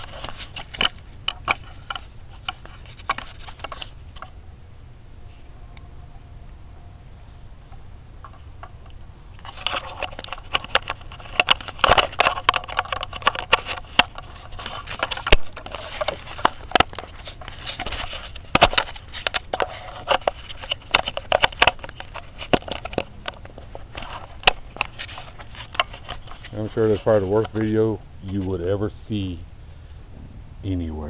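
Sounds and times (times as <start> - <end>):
camera handling noise: 0.0 - 4.4, 8.3 - 27.7
clicks crackles and scrapes: 0.0 - 4.4, 8.2 - 28.8.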